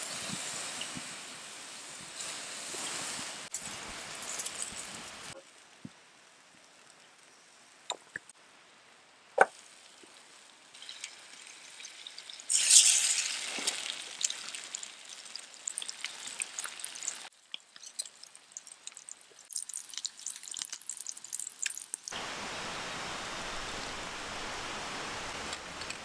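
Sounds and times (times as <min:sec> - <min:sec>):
loud sizzle: 0:00.0 - 0:26.0
fire crackling and popping: 0:01.9 - 0:08.4, 0:09.4 - 0:22.2.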